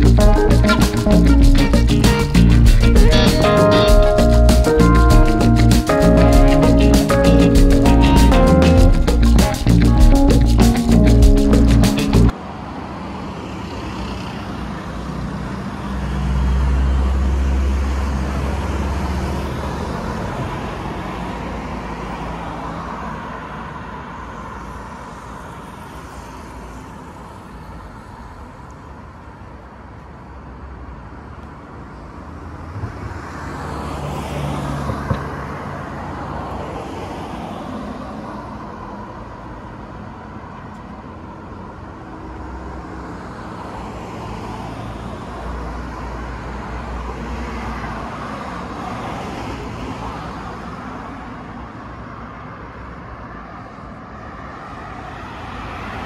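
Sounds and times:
road traffic hiss: 0.0s - 15.1s.

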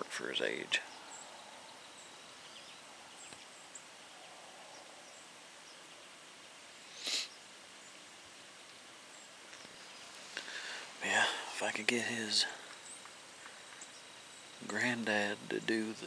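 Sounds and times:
faint high bird chirps: 0.4s - 6.2s.

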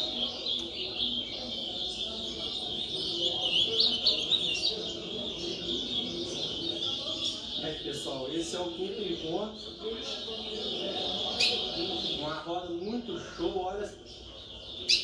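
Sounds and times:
people murmuring: 0.0s - 15.0s
songbirds chirping and singing: 0.0s - 15.0s.

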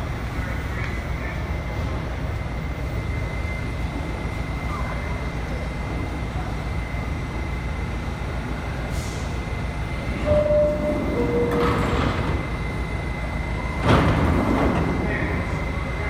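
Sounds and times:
subway train low rumble: 0.0s - 16.0s
sliding doors shutting: 10.1s - 16.0s
two-note door chime: 10.2s - 11.9s.

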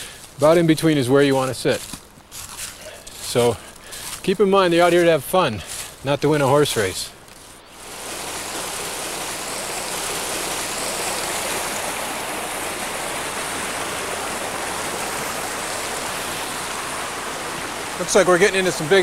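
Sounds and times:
stream rushing over cascades: 7.7s - 19.0s.

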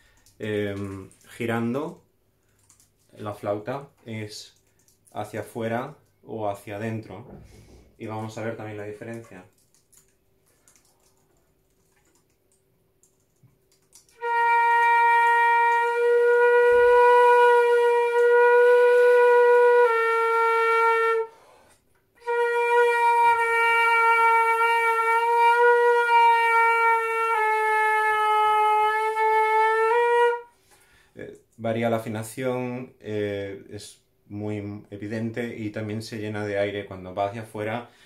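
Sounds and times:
flute playing a held note: 14.0s - 21.6s, 22.2s - 30.5s.

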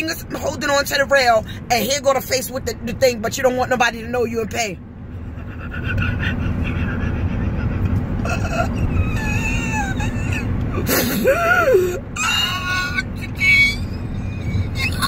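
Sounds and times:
car cabin rumble: 0.0s - 15.0s
woman whimpering: 8.2s - 13.1s.

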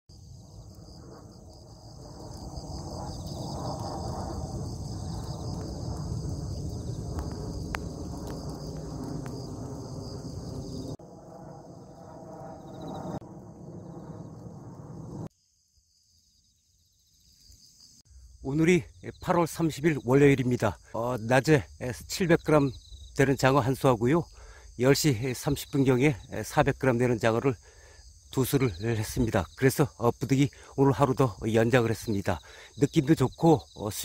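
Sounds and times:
insects chirping: 0.1s - 34.0s.

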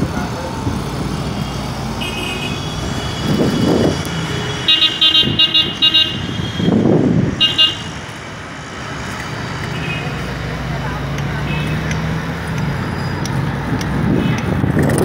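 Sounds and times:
traffic rumble: 0.0s - 15.0s
vehicle horn toots: 2.0s - 3.4s, 4.6s - 6.7s, 7.4s - 7.9s.

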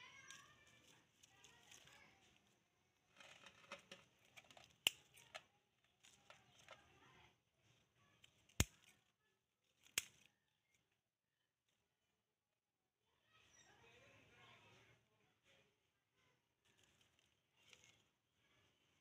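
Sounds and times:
scissors snipping twigs: 4.7s - 5.3s, 8.4s - 9.0s, 9.8s - 10.3s.

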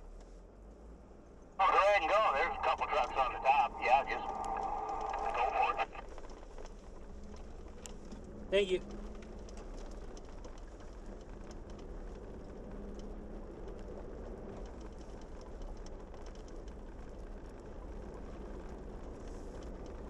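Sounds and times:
car engine and tyres rumbling: 0.0s - 20.0s
gravel clicking: 1.6s - 20.0s.

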